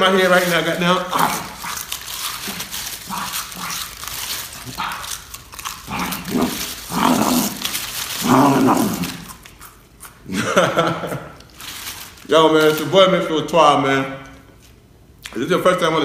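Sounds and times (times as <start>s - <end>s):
chewing crunchy chips: 0.2s - 12.9s.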